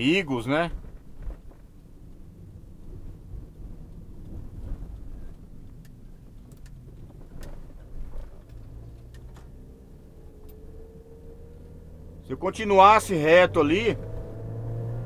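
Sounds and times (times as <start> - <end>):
car engine and tyres rumbling: 0.0 - 15.0
faint clicks and rattles: 3.9 - 9.5.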